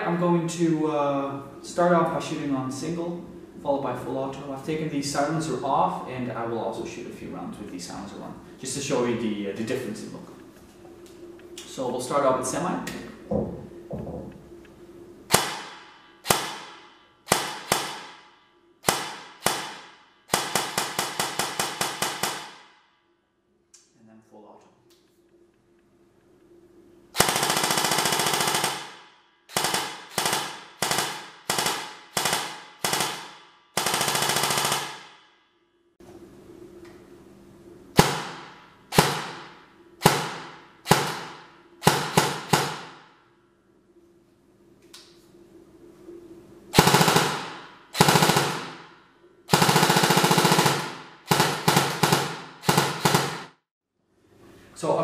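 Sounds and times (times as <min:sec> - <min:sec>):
airsoft rifle shots: 0:15.3 - 0:22.8, 0:27.2 - 0:35.3, 0:38.0 - 0:43.2, 0:46.7 - 0:53.6.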